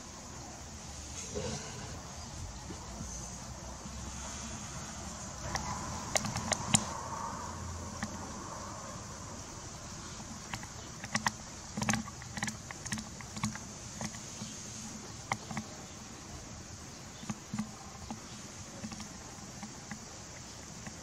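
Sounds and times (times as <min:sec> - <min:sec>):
steady hiss: 0:00.0 - 0:21.0
cats wet clicks and smacks: 0:05.4 - 0:07.0, 0:07.9 - 0:08.3, 0:10.3 - 0:14.5, 0:15.2 - 0:15.7, 0:17.2 - 0:21.0.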